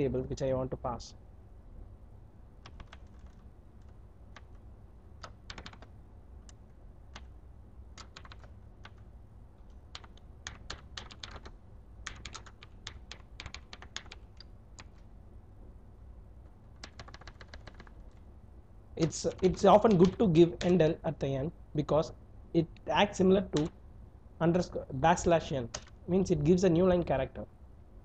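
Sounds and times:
low steady hum: 0.0s - 28.0s
keyboard typing: 2.6s - 4.6s, 5.2s - 5.9s, 6.5s - 9.0s, 9.8s - 15.1s, 16.8s - 18.2s, 19.0s - 20.8s, 23.4s - 23.8s, 25.7s - 26.0s.

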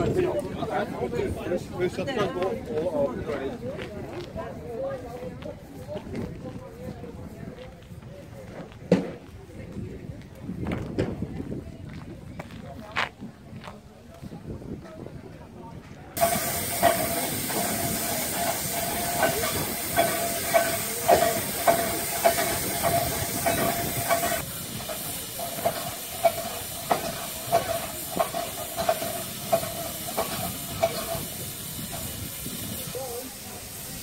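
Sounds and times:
steam locomotive hissing: 16.2s - 34.0s.

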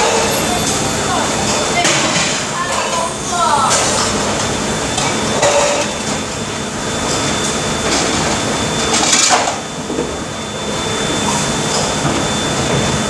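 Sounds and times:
dishware and racks clattering: 0.0s - 4.3s, 5.0s - 6.2s
dishwashing machinery noise: 0.0s - 13.0s.

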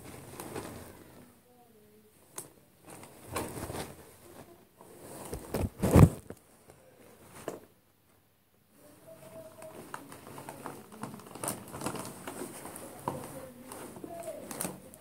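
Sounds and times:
plastic bag crinkling: 9.2s - 15.0s.

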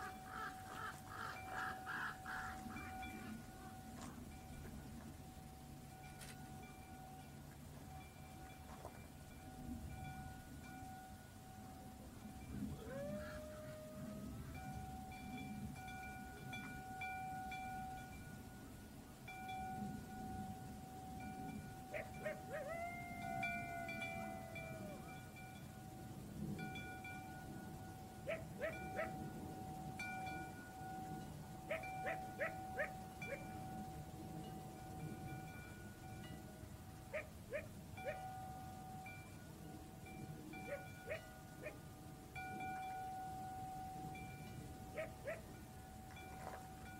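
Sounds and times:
metal wind chimes ringing: 1.4s - 46.9s
dog barking: 28.3s - 29.2s.

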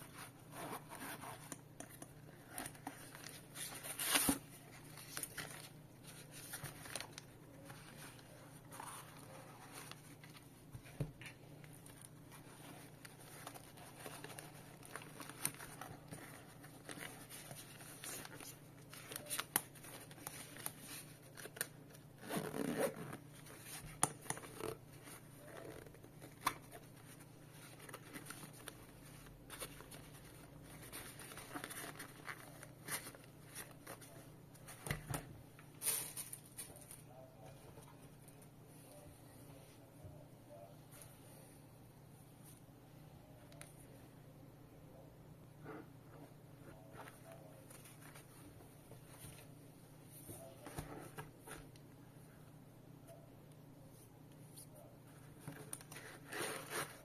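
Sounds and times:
bag handling clicks and scrapes: 22.2s - 23.2s.

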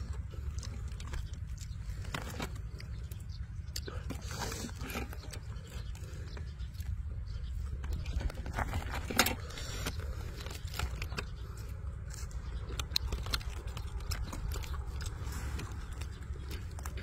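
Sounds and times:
close chewing: 0.0s - 17.0s
fried chicken crackling as torn: 7.9s - 17.0s.

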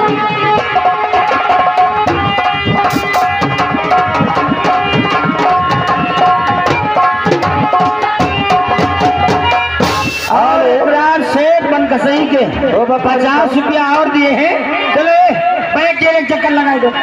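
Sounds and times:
hand drum rhythm: 0.0s - 10.5s
held melody notes: 0.0s - 12.0s.

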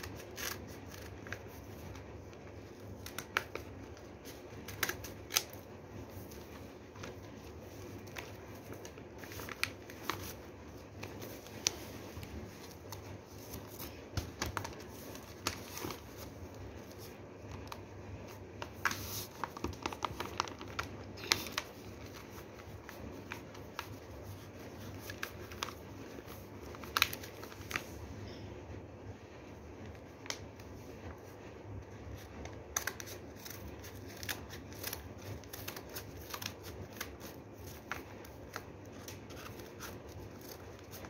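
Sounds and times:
scissors snipping paper: 0.0s - 1.9s, 32.7s - 41.0s
newspaper rustling: 0.0s - 28.0s.

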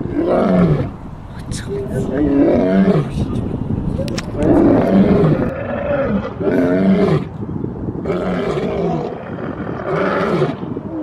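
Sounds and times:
lion roaring: 0.0s - 0.9s, 1.7s - 3.1s, 4.0s - 7.3s, 8.0s - 11.0s.

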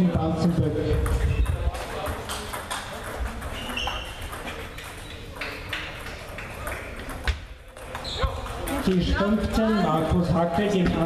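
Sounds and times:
distant table tennis clicks: 1.0s - 9.0s.

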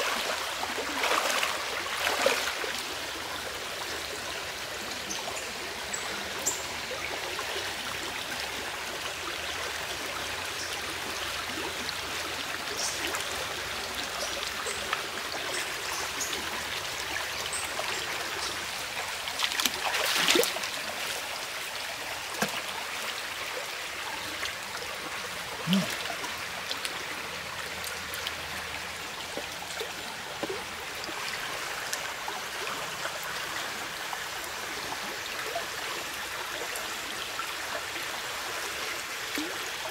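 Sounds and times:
water splash: 0.0s - 2.7s, 19.4s - 20.7s
stream water running: 0.0s - 39.9s
water trickling and clicking: 12.7s - 21.5s, 22.2s - 22.8s, 25.4s - 33.4s.

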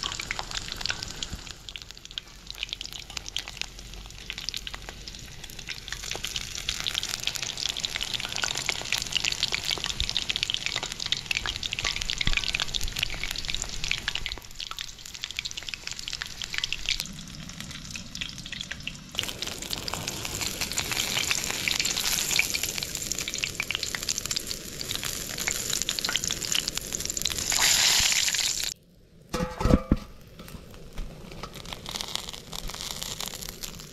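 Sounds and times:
oil sizzling and crackling: 0.0s - 33.9s.

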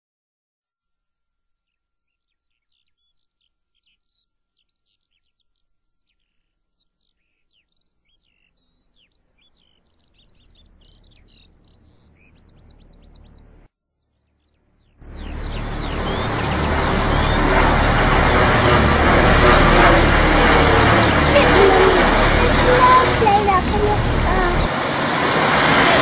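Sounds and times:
birds chirping: 2.1s - 25.8s
low rumble: 15.0s - 26.0s.

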